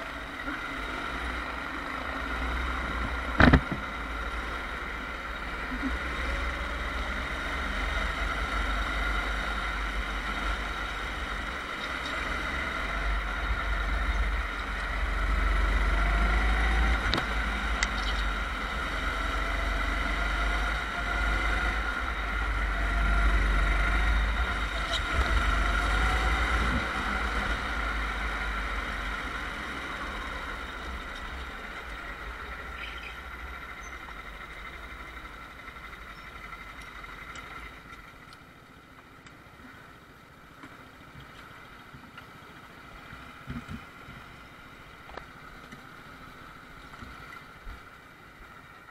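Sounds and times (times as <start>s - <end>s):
go-kart engine running: 0.0s - 38.8s.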